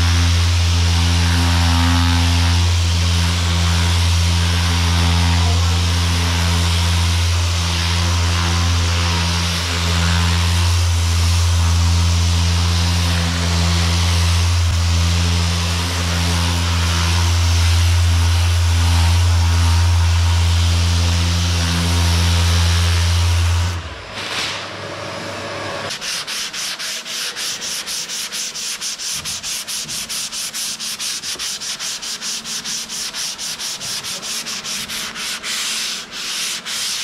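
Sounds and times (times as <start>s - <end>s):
power sander running: 0.0s - 24.1s.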